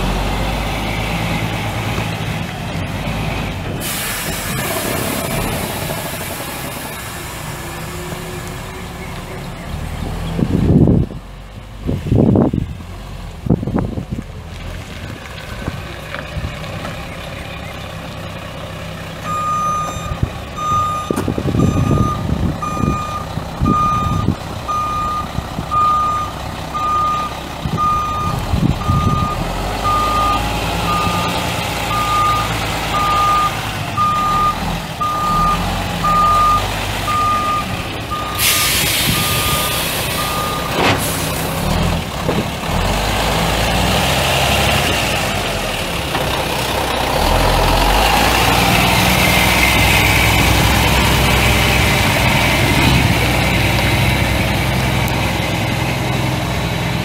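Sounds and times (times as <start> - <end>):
diesel engine running: 0.0 - 57.0
air hiss: 3.8 - 4.8, 38.4 - 40.2
truck backup alarm beeping: 19.2 - 41.6
sharp clunk: 40.7 - 41.3.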